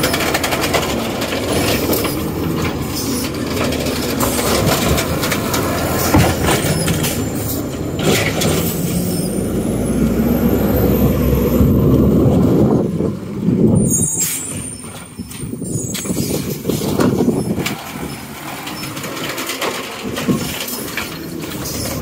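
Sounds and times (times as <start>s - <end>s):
knocks and clanks: 0.0s - 9.2s, 14.8s - 22.0s
garbage truck running: 0.0s - 22.0s.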